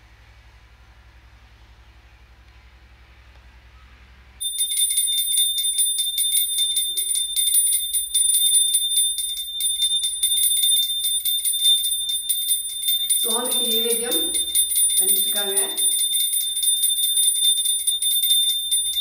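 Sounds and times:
small brass hand bell ringing: 0:04.4 - 0:19.0.

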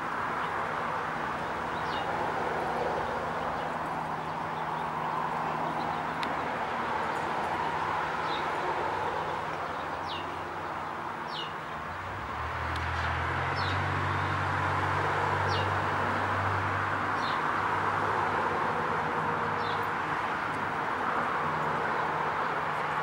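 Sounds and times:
bird chirping: 0:08.2 - 0:11.9.

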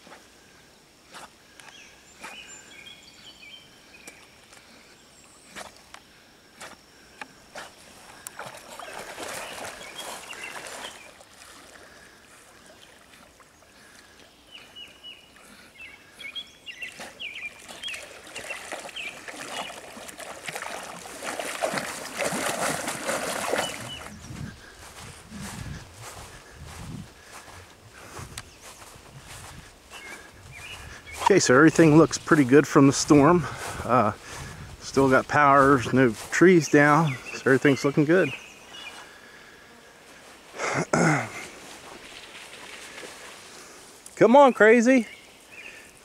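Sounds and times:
dog splashing in water: 0:08.0 - 0:13.4, 0:16.9 - 0:24.3.

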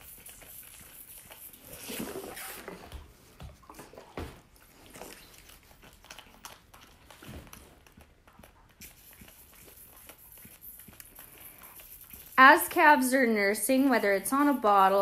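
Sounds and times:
calf sucking and slurping: 0:00.0 - 0:15.0.

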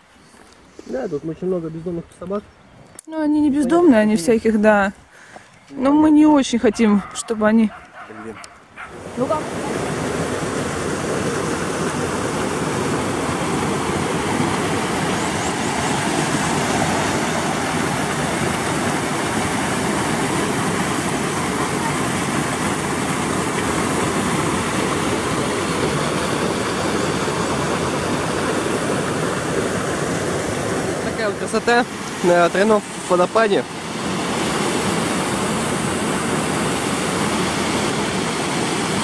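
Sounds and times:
waterfall roaring: 0:08.2 - 0:39.0.

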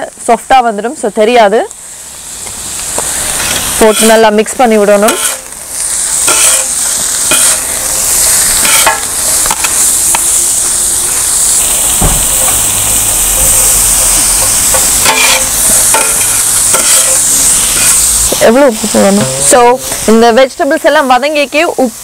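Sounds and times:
vegetables sizzling on griddle: 0:00.0 - 0:22.0
metal spatulas scraping: 0:03.4 - 0:04.2, 0:05.0 - 0:05.5, 0:06.2 - 0:07.6, 0:08.6 - 0:09.8, 0:14.4 - 0:18.0.

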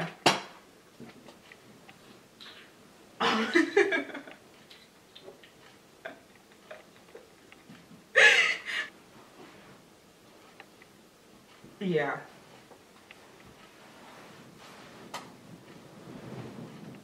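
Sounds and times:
woman laughing: 0:03.2 - 0:04.4, 0:08.1 - 0:08.9.

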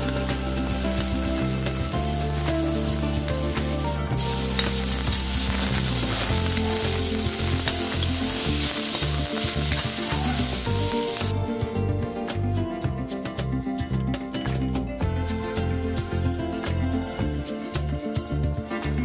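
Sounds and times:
vegetables sizzling in a wok: 0:00.0 - 0:11.3
spatula stirring and tossing: 0:02.3 - 0:11.3.

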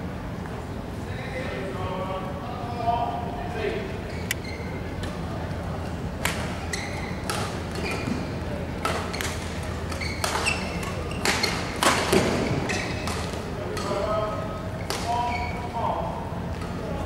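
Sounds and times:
shoe squeaks on court: 0:04.0 - 0:04.8, 0:06.6 - 0:08.3, 0:09.9 - 0:11.7, 0:12.3 - 0:13.1
racket hitting shuttlecock: 0:07.2 - 0:08.2, 0:08.8 - 0:14.1.

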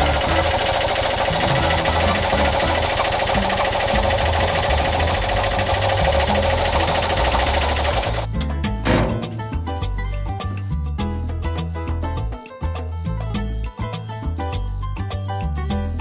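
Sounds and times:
small engine idling with clatter: 0:00.0 - 0:09.4.

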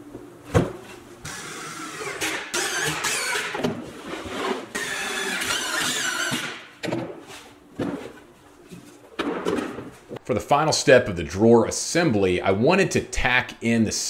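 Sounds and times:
cordless drill driving screws: 0:01.3 - 0:03.6, 0:04.7 - 0:06.6.

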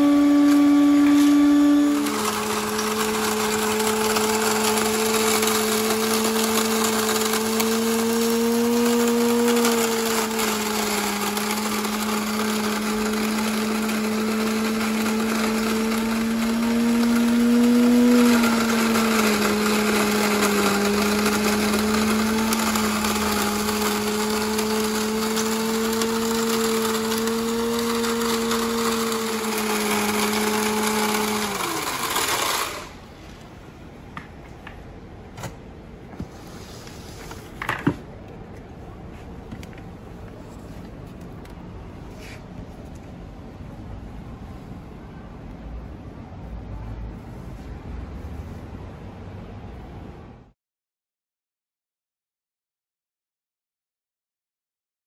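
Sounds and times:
machine motor humming: 0:00.0 - 0:33.0
motor spinning down: 0:00.0 - 0:33.0
corn rattling in bucket: 0:01.9 - 0:33.0.

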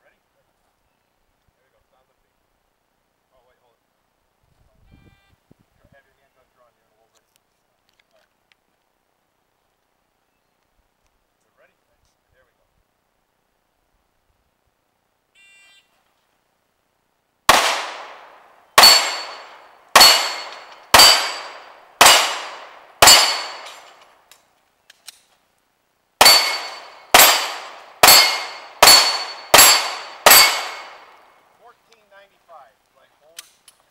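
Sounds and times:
pistol shots: 0:17.5 - 0:24.0, 0:26.2 - 0:31.2
steel plates ringing: 0:18.8 - 0:22.4, 0:23.0 - 0:24.0, 0:26.2 - 0:31.2.

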